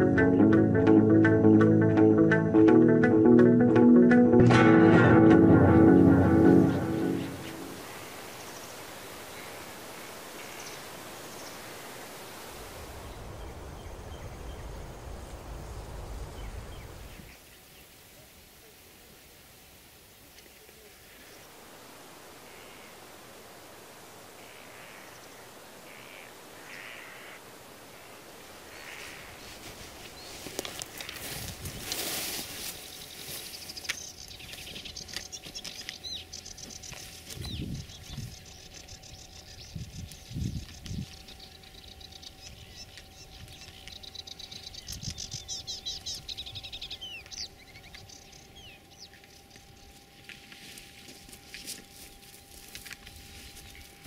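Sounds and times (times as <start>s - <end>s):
wind rustling through grass: 6.6s - 54.0s
footsteps through tall grass: 6.8s - 9.5s, 28.7s - 38.9s, 49.1s - 54.0s
wind rumble on microphone: 12.5s - 17.4s, 31.2s - 32.3s, 37.2s - 41.4s, 44.5s - 47.0s
short high bird calls: 24.4s - 27.4s.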